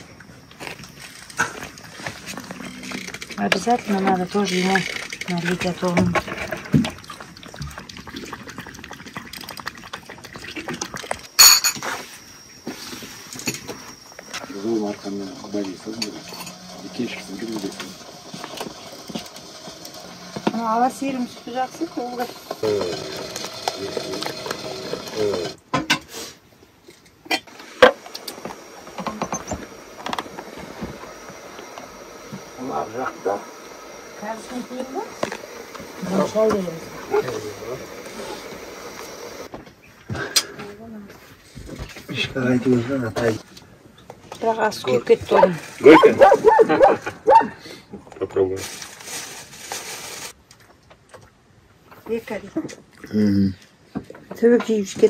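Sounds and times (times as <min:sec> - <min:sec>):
cat lapping milk: 0:07.0 - 0:11.0
dishware clinking: 0:11.4 - 0:12.0.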